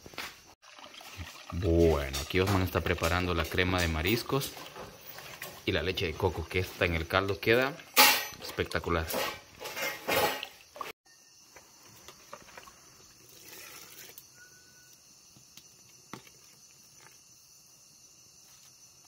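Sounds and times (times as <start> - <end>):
crickets chirring: 0.0 - 19.0
liquid pouring: 0.6 - 6.8, 12.1 - 14.3
metal ladle clinking on pot: 7.9 - 8.5.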